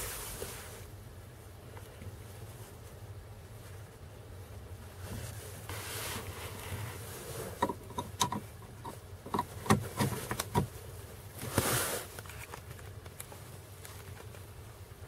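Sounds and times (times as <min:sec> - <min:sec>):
plastic clicks and knocks: 0:07.6 - 0:10.7.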